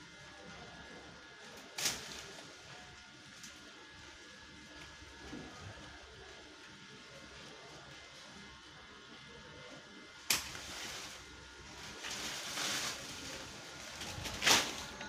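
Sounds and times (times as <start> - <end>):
branch cracking: 1.6 - 2.5, 10.2 - 15.0
leaves rustling: 1.6 - 2.8, 10.3 - 15.0
swish and crash of leaves: 1.8 - 2.5, 10.3 - 15.0.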